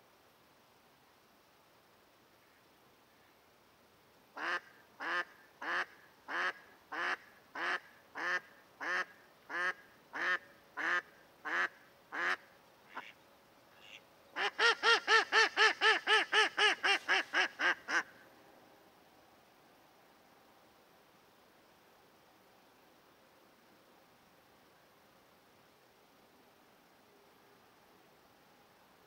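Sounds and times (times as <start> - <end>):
duck quacking: 4.4 - 13.2, 13.8 - 18.1.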